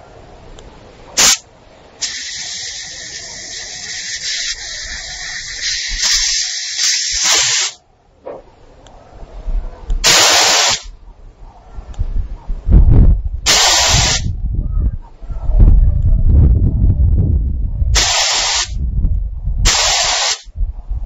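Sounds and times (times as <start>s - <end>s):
air hissing from tyre valve: 1.2s - 1.4s, 2.0s - 7.8s, 10.0s - 10.9s, 13.5s - 14.3s, 18.0s - 18.8s, 19.6s - 20.5s.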